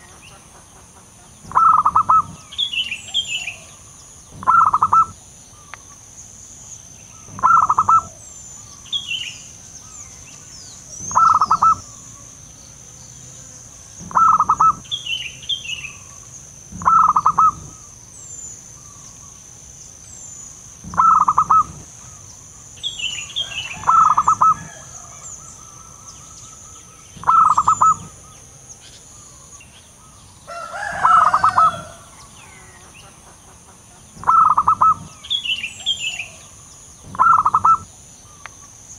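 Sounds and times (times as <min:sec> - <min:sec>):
birds chirping: 0:00.0 - 0:38.9
dove cooing: 0:01.5 - 0:03.8, 0:04.4 - 0:05.2, 0:07.2 - 0:08.3, 0:10.9 - 0:12.2, 0:14.0 - 0:14.9, 0:16.7 - 0:17.9, 0:20.8 - 0:22.2, 0:23.4 - 0:26.1, 0:27.2 - 0:28.3, 0:30.5 - 0:32.7, 0:34.2 - 0:36.5, 0:37.1 - 0:37.9.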